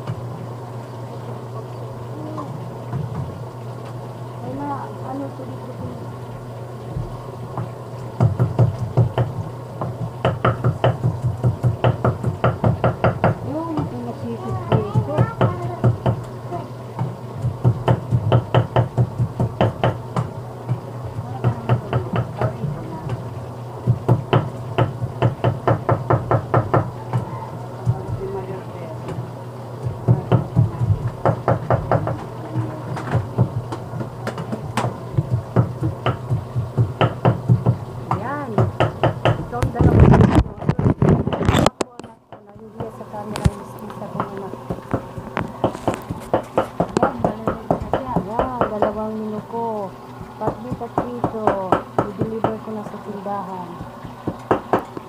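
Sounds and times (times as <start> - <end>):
low steady hum: 0.0 - 55.0
sharp knocks: 7.6 - 13.9, 17.0 - 23.2, 23.9 - 27.3, 29.8 - 32.3, 32.9 - 43.0, 44.2 - 49.0, 50.2 - 52.6, 53.8 - 54.9.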